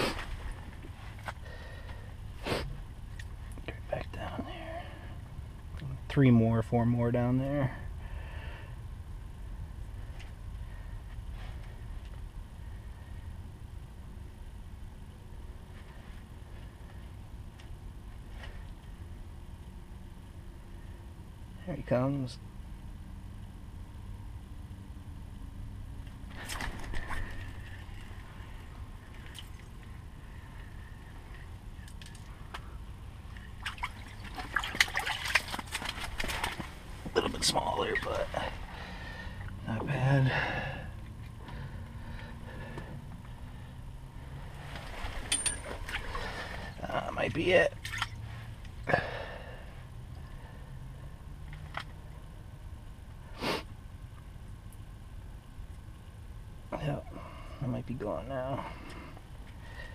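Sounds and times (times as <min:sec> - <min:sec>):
low steady hum: 0:00.0 - 0:59.9
steady low rumble: 0:00.0 - 0:59.9
person sniffing: 0:02.4 - 0:02.8, 0:53.4 - 0:53.7
water splashing and dripping: 0:33.3 - 0:36.7, 0:47.8 - 0:48.2.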